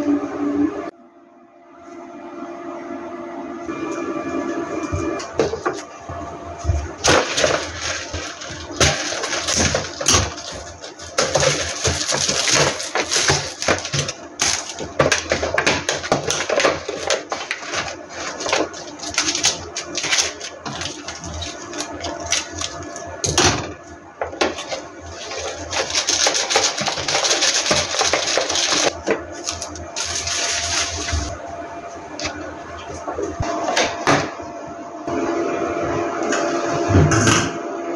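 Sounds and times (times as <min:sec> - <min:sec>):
plastic film crinkling: 0:07.0 - 0:23.1, 0:24.5 - 0:31.4.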